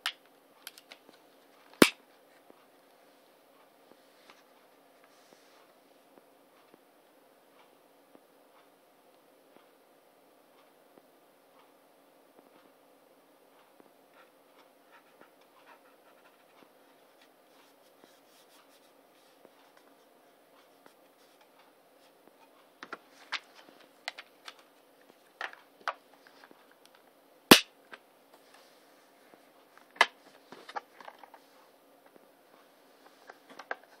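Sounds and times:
faint handling of disc case: 28.3s - 34.0s.

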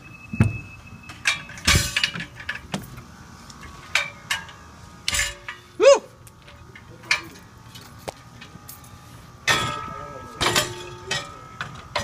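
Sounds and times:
metal clanks on ladder: 1.1s - 2.9s, 3.8s - 5.6s, 9.4s - 12.0s.

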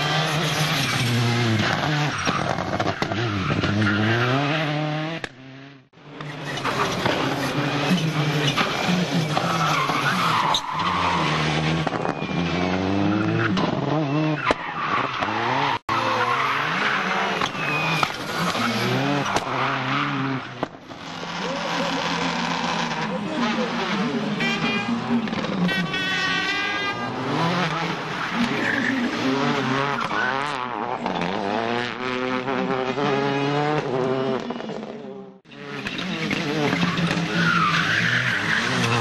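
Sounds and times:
tyre squeal: 6.3s - 20.4s
rally car engine revving hard: 15.1s - 39.0s.

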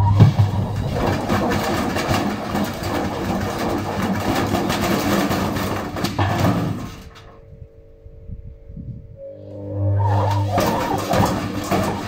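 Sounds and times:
washing machine rattling and banging: 0.0s - 7.4s, 10.0s - 12.0s.

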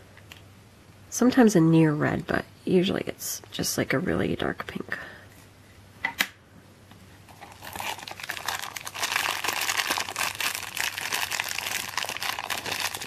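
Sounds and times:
plastic bag crinkling: 7.3s - 13.0s.

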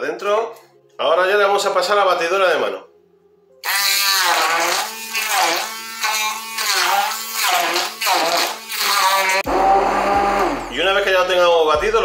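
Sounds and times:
hand blender motor whining: 3.6s - 10.8s.

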